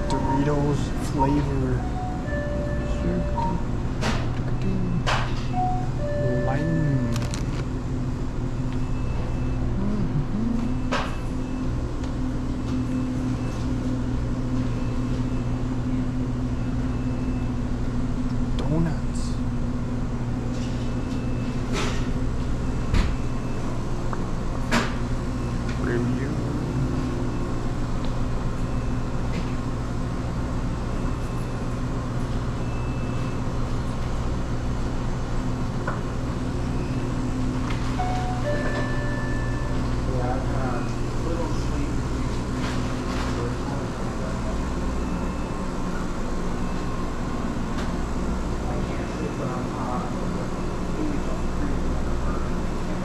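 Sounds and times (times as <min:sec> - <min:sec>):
brief high tones: 0:00.0 - 0:03.7, 0:05.6 - 0:07.4, 0:38.0 - 0:39.8
low mechanical hum: 0:00.0 - 0:53.0.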